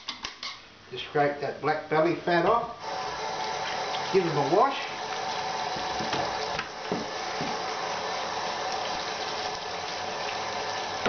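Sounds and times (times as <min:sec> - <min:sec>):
tap running into steel sink: 0:05.7 - 0:07.6.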